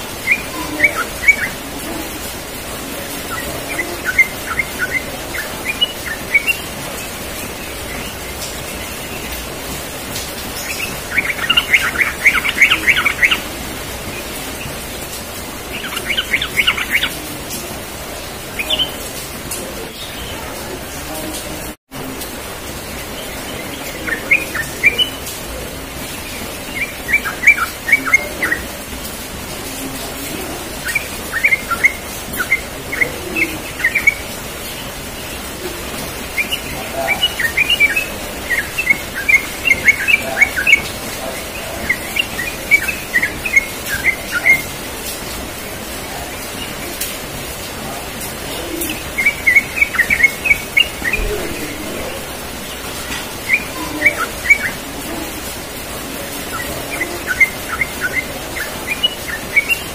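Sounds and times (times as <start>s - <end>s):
bird singing bubbly chirps: 0.0s - 9.7s, 10.5s - 15.0s, 15.6s - 17.3s, 18.4s - 19.0s, 23.1s - 28.8s, 30.3s - 44.9s, 48.5s - 55.3s, 56.4s - 59.9s.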